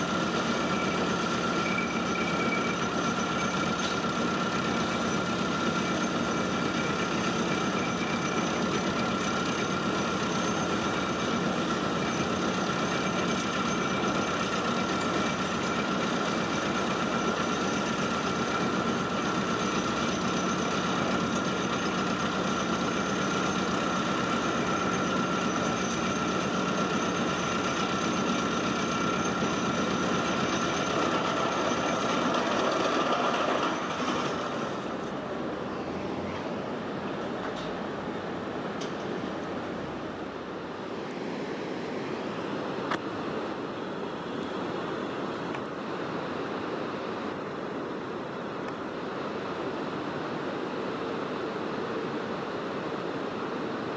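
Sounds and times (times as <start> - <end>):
vibratory pile hammer droning: 0.0 - 35.0.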